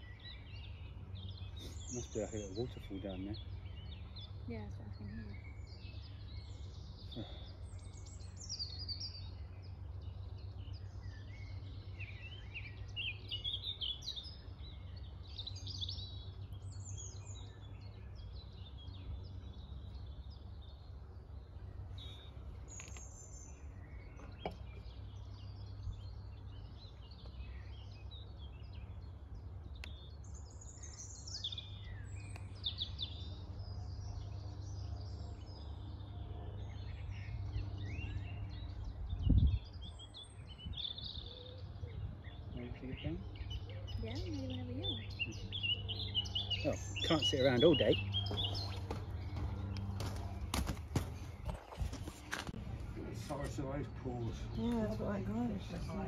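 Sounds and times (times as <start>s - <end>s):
birds singing and chirping: 0.0s - 56.0s
steady low rumble: 31.5s - 56.0s.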